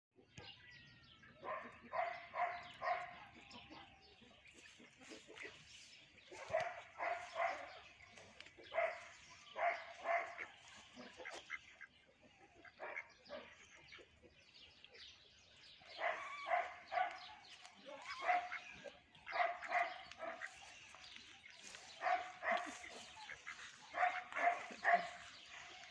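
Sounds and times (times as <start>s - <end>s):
dog barking: 1.4s - 4.0s, 6.2s - 11.4s, 12.6s - 13.7s, 15.8s - 25.9s.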